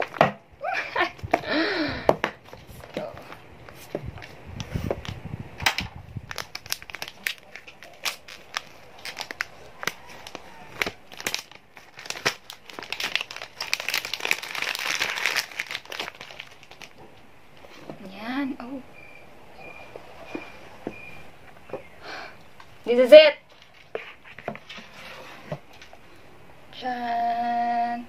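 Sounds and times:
paper seal strips tearing: 6.3 - 16.9
cardboard box handling crackles: 6.3 - 17.0.

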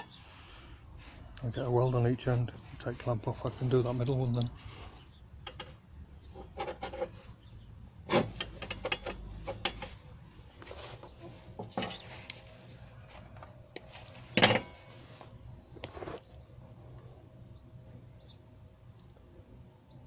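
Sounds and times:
steel parts clanking on steel bench: 8.1 - 10.0, 13.8 - 14.9.

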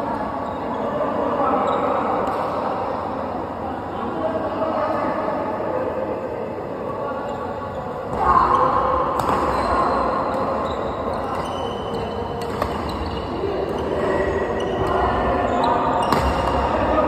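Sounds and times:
steady background noise: 0.0 - 17.0
rackets hitting shuttlecock: 9.2 - 9.6, 11.3 - 13.1, 16.0 - 16.7.

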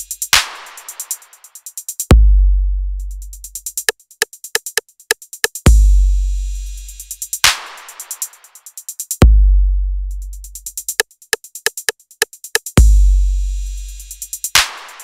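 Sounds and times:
hi-hat ticks: 0.0 - 2.2, 2.9 - 9.3, 10.1 - 15.0
deep bass kick: 2.2 - 3.0, 5.7 - 6.4, 9.2 - 10.1.

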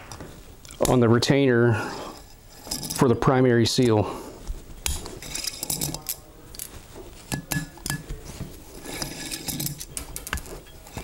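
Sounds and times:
metal clicks and clinks: 4.8 - 6.7.

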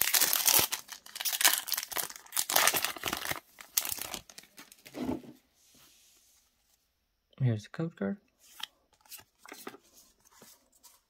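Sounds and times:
foil wrapper tearing and crinkling: 0.0 - 4.5.

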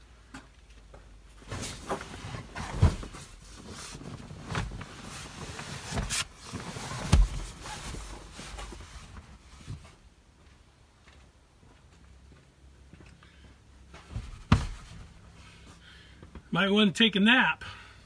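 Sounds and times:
mattress pad rustling: 1.5 - 9.8
dull thumps: 7.0 - 7.7, 14.0 - 15.1.

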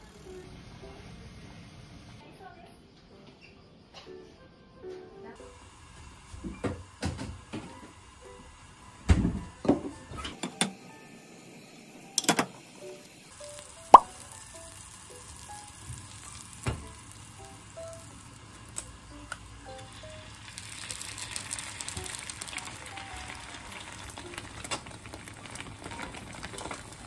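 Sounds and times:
light background music: 2.2 - 6.0, 7.3 - 20.6, 21.4 - 24.6
butter sizzling in frying pan: 5.4 - 27.0.

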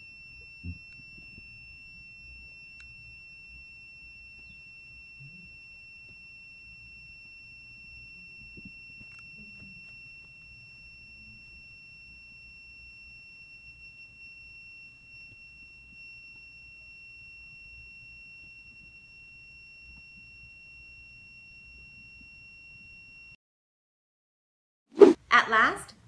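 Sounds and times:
high-pitched electronic buzzer tone: 0.0 - 1.0.

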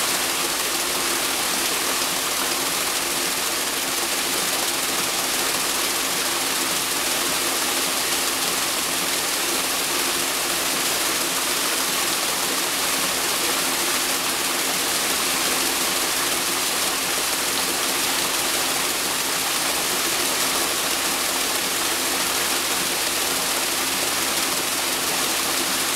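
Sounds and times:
paddle wheels churning water: 0.0 - 25.9.

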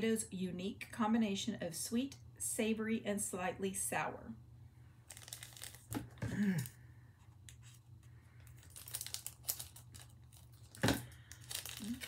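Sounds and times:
plastic wrapper crinkling and tearing: 5.1 - 6.8, 7.4 - 12.0.

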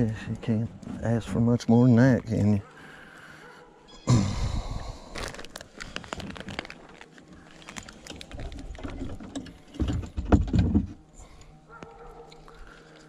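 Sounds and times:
crinkling handling noise: 4.8 - 13.0.

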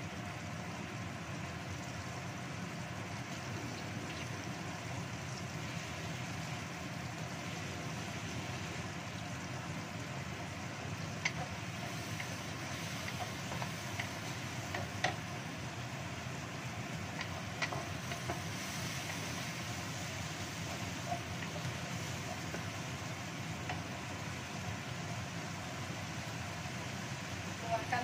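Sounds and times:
paste sizzling in oil: 1.6 - 28.0
wooden spatula knocking pan: 11.2 - 15.3, 17.1 - 19.3.

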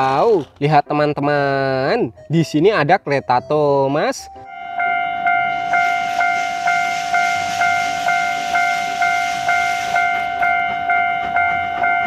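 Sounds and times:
level-crossing bell ringing: 4.3 - 12.0
steam locomotive hissing: 5.4 - 10.6.

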